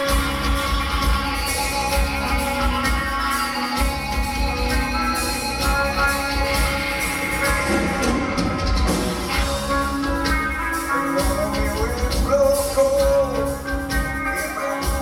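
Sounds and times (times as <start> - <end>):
heavy metal band playing live: 0.0 - 15.0
lead vocal singing: 10.9 - 15.0.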